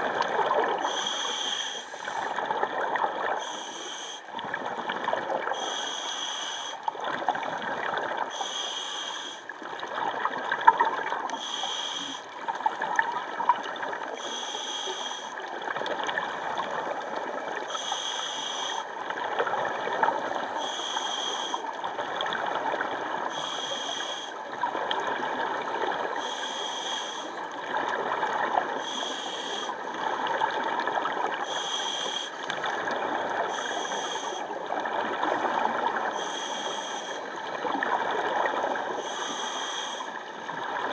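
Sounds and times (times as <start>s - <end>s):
bubbles gurgling and crackling: 0.0s - 3.5s, 4.2s - 5.8s, 6.8s - 8.4s, 9.4s - 11.5s, 12.1s - 14.3s, 15.3s - 17.8s, 18.7s - 26.4s, 27.3s - 36.2s, 37.2s - 39.2s, 40.0s - 40.9s
diver breathing through regulator: 0.8s - 2.4s, 3.4s - 4.4s, 5.5s - 6.9s, 8.3s - 9.5s, 11.4s - 12.8s, 14.2s - 15.4s, 17.7s - 19.0s, 20.5s - 21.6s, 23.3s - 24.4s, 26.2s - 27.5s, 28.8s - 29.8s, 31.4s - 32.7s, 33.5s - 34.5s, 36.1s - 37.4s, 38.9s - 40.2s.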